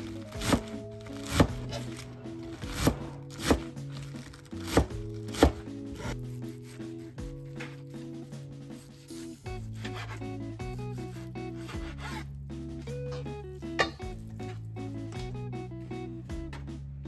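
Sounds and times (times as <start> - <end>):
background music: 0.0 - 17.0
knife chopping on cutting board: 0.3 - 8.0, 9.6 - 10.2, 11.6 - 12.2.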